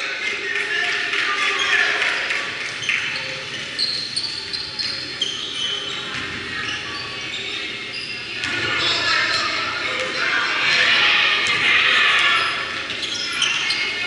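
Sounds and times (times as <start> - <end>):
sneakers squeaking on court: 1.5 - 14.0.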